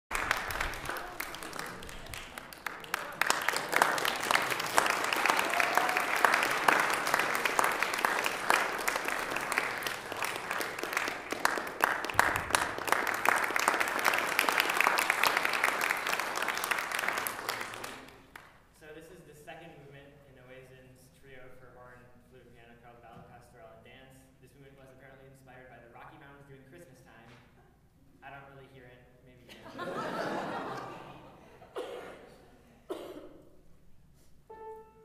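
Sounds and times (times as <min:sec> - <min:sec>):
audience applauding: 0:00.1 - 0:18.5.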